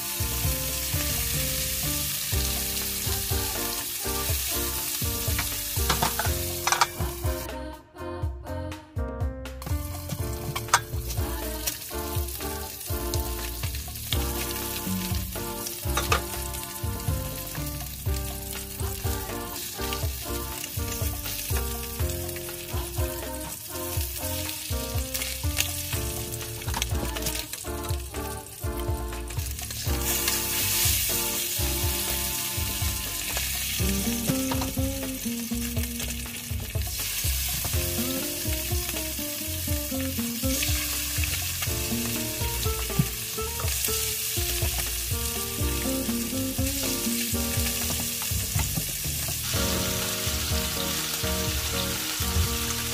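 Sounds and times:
fish sizzling in hot oil: 0.0s - 7.5s, 9.6s - 52.9s.

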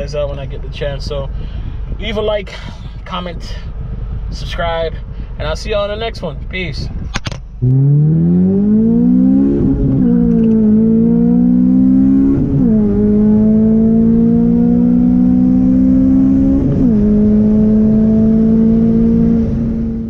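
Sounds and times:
car engine accelerating through gears: 7.0s - 20.0s.

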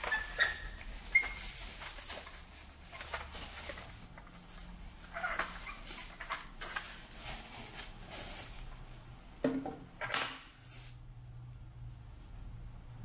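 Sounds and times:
bubble wrap rustling and crinkling: 0.0s - 9.1s, 10.5s - 11.1s.

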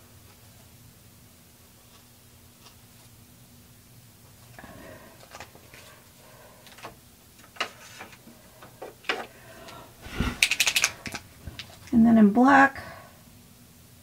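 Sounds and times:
plastic pen caps clicking: 10.4s - 11.7s.

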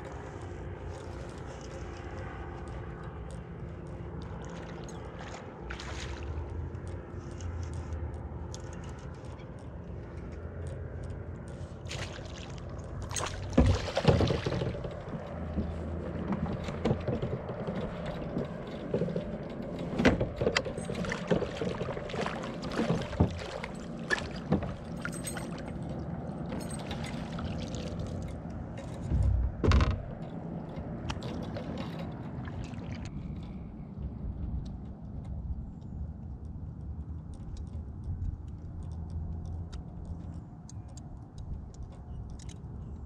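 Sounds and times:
water splashing: 4.4s - 6.5s, 11.9s - 15.2s, 20.8s - 28.3s, 31.2s - 33.1s.

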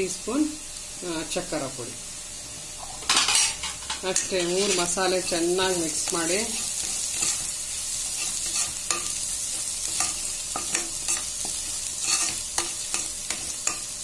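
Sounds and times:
onions sizzling in oil: 0.0s - 14.0s
metal spoon scraping pan: 3.1s - 5.0s, 6.5s - 9.2s, 9.8s - 13.9s.

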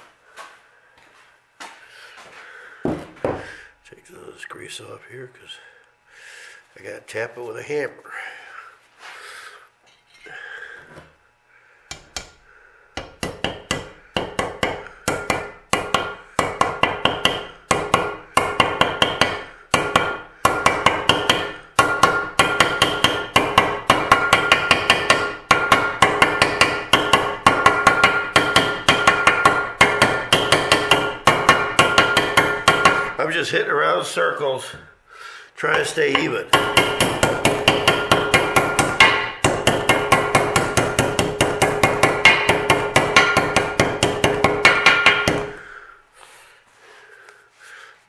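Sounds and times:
hammer tapping on steel: 11.9s - 12.4s, 13.0s - 33.2s, 35.7s - 45.6s.

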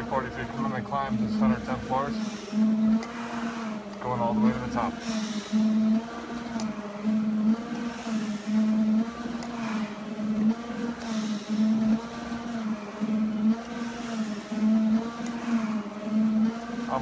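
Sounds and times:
stair-climber machine droning hum: 0.0s - 17.0s
breath through respirator mask: 2.1s - 3.9s, 4.9s - 16.4s.

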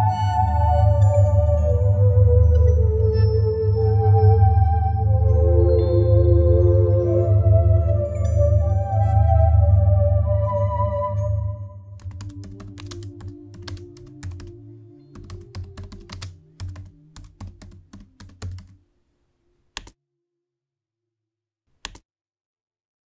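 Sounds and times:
keyboard key clicks: 12.0s - 14.5s, 15.2s - 18.8s, 21.8s - 22.0s.

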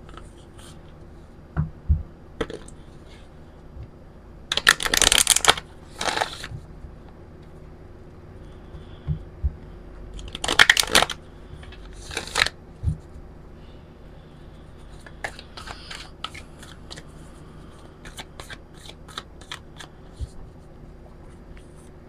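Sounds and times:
cards clicking and sliding: 4.5s - 6.5s, 15.0s - 17.1s, 18.0s - 20.3s
cards being riffle-shuffled: 4.5s - 6.6s, 10.2s - 12.6s, 15.0s - 17.1s, 18.0s - 20.4s.

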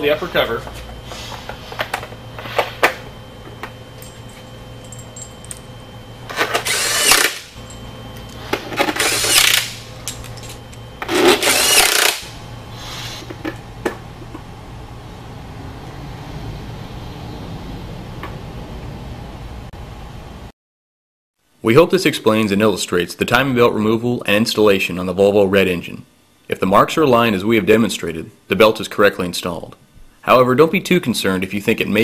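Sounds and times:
cordless drill whining: 6.4s - 7.5s, 9.0s - 9.7s, 11.2s - 12.3s.

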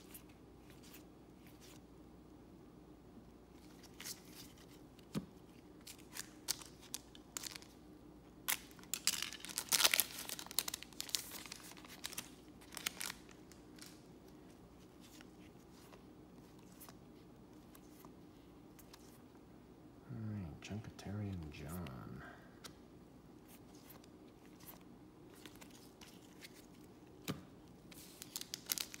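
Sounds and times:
cards being handled: 3.5s - 7.8s, 8.5s - 19.2s, 23.4s - 29.0s
foil wrapper tearing and crinkling: 8.5s - 14.0s, 28.0s - 29.0s.

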